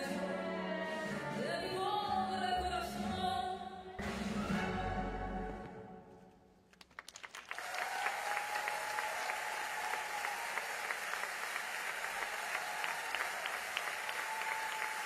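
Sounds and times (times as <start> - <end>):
crowd applauding: 6.7 - 15.0.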